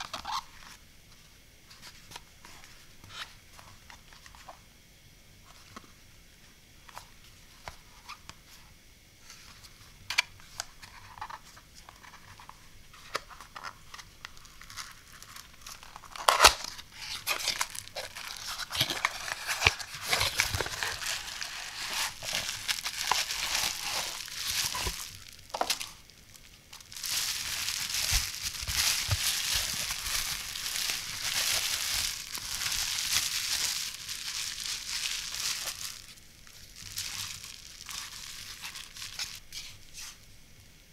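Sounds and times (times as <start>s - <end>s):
plastic bag crinkling: 13.6s - 40.0s.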